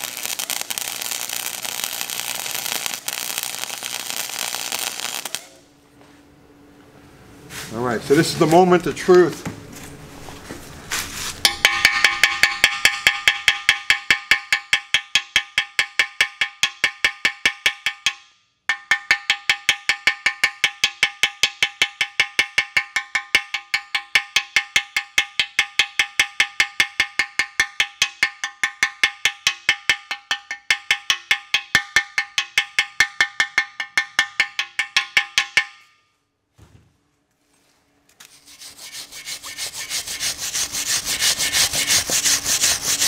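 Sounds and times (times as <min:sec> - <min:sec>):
hammer blows ringing on metal: 0:11.5 - 0:35.9.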